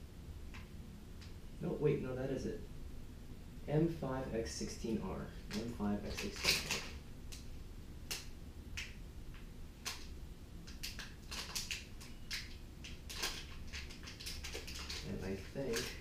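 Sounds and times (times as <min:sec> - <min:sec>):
plastic bag crinkling: 0:05.5 - 0:07.0, 0:10.7 - 0:16.0.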